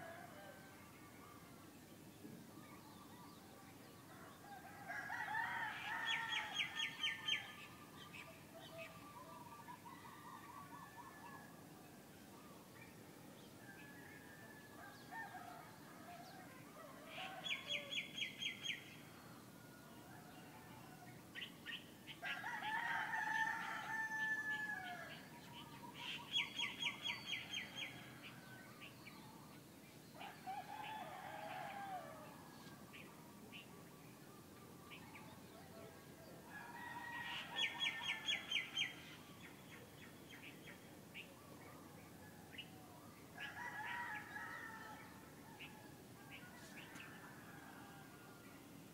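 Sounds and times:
low background noise: 0:00.0 - 0:48.9
rooster crowing: 0:04.5 - 0:06.8, 0:22.2 - 0:25.2, 0:36.5 - 0:38.7, 0:43.4 - 0:45.8.

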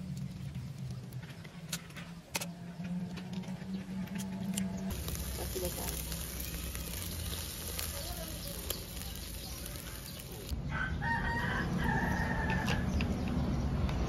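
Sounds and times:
fish sizzling on a grill: 0:04.9 - 0:10.6
sharp crackle: 0:04.9 - 0:10.6
rooster crowing: 0:10.6 - 0:13.0.

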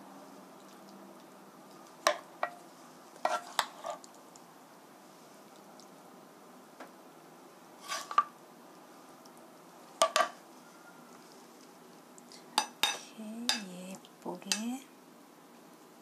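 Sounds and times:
spoon scraping food from pan: 0:03.2 - 0:04.1, 0:07.8 - 0:08.3.

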